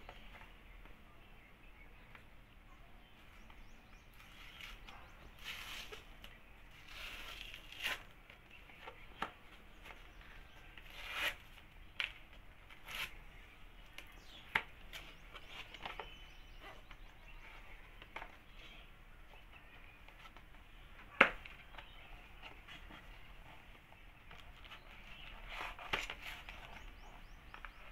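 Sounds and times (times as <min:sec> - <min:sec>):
paper seal peeling and tearing: 0:04.1 - 0:08.2, 0:10.8 - 0:13.2.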